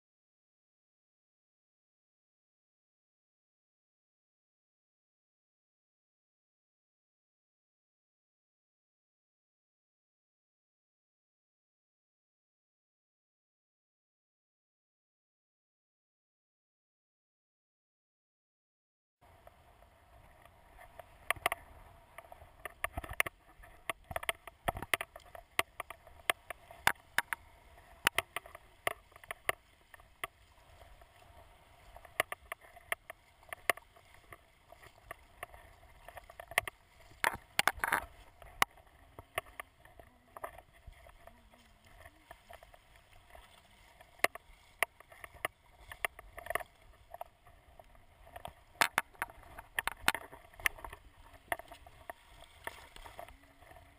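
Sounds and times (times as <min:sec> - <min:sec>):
water lapping in shallows: 0:19.2 - 0:53.9
sharp splashes and knocks: 0:31.9 - 0:39.7.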